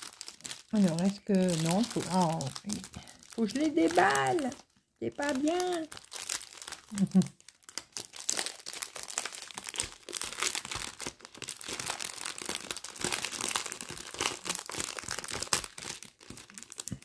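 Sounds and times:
plastic packaging crinkling: 0:00.0 - 0:17.0
small plastic bags rustling: 0:00.0 - 0:17.0.

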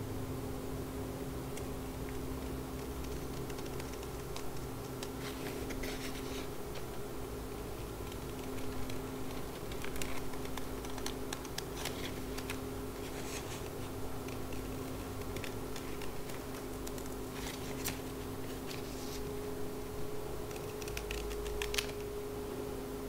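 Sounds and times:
steady hum: 0:00.0 - 0:23.0
scissors snipping paper: 0:08.0 - 0:18.9, 0:20.5 - 0:22.1.

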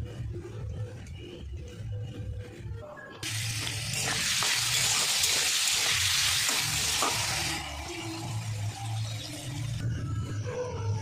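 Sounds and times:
potato sticks sizzling in oil: 0:03.2 - 0:09.8.

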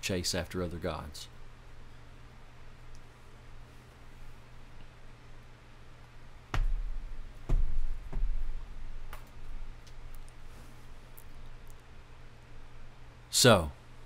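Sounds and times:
steady low hum: 0:00.0 - 0:14.0
microphone handling knocks: 0:06.5 - 0:09.3.

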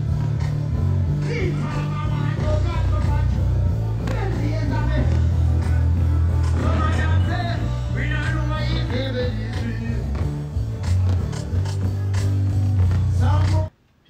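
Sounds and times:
heavy bass line: 0:00.0 - 0:13.7
person singing: 0:01.2 - 0:10.3, 0:12.8 - 0:13.8.

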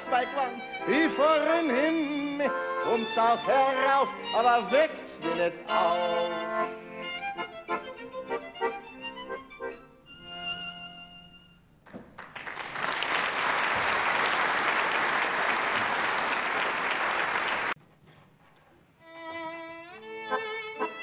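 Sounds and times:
violin and accordion playing: 0:00.0 - 0:11.6, 0:19.0 - 0:21.0
audience applauding: 0:11.9 - 0:17.8.

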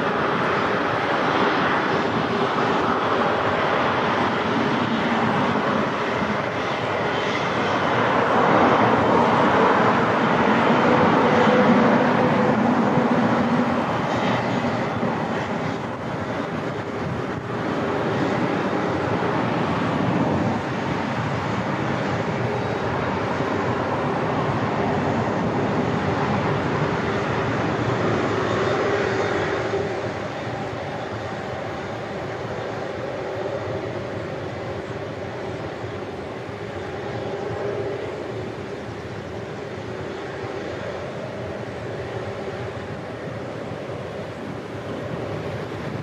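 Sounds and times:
jet engines rushing: 0:00.0 - 0:46.0.

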